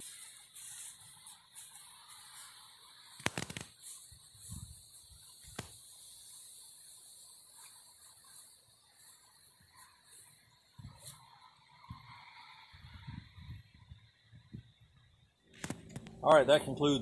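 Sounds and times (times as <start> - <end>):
faint high hiss: 0.0 - 13.6.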